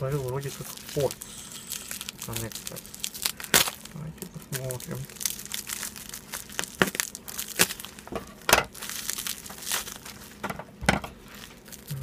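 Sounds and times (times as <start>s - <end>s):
plastic crinkling: 0.0s - 12.0s.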